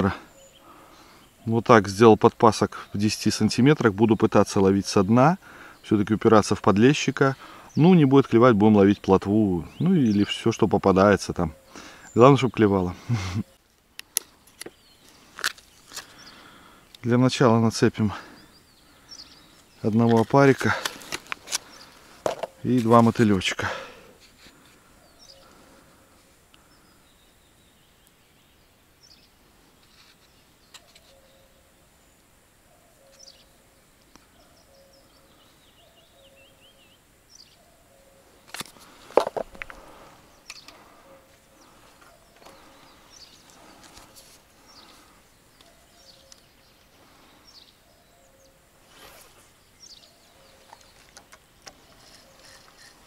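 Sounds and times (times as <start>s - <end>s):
bird chirps: 0.0s - 1.5s, 25.0s - 25.8s, 26.6s - 31.8s, 32.6s - 53.0s.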